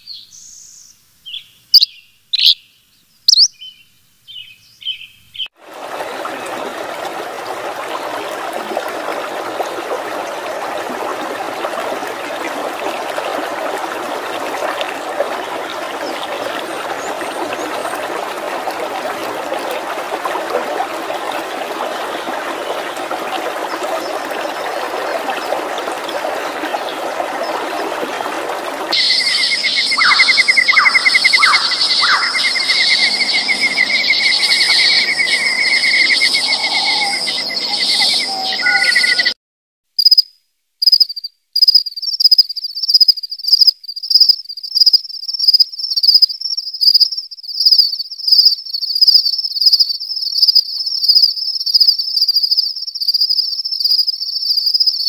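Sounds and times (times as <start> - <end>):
stream running over stones: 5.6 - 38.8
shrill cricket-like chirps: 40.0 - 55.0.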